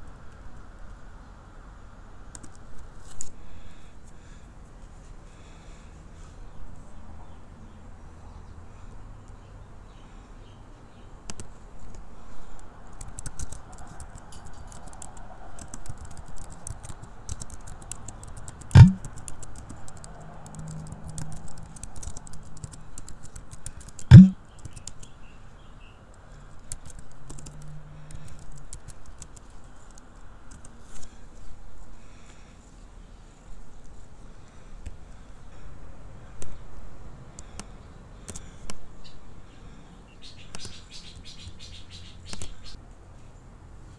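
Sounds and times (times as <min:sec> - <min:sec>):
keyboard typing: 0:12.9 - 0:25.1, 0:26.7 - 0:30.8
loud thumps: 0:18.8 - 0:19.0, 0:24.1 - 0:24.4.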